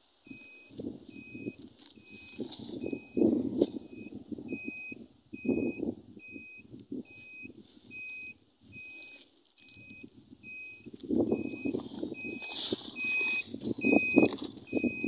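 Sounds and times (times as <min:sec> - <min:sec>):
electronic short beeps: 0:00.3 - 0:15.0
rustling and scuffing: 0:01.6 - 0:03.8, 0:11.0 - 0:14.7.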